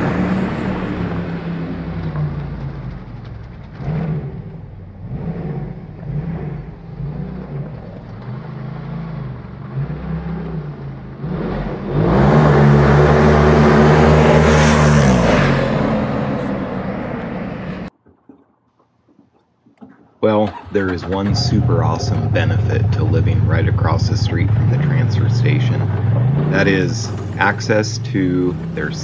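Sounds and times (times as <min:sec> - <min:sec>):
off-road vehicle engine revving: 0:00.0 - 0:17.9, 0:20.4 - 0:29.0.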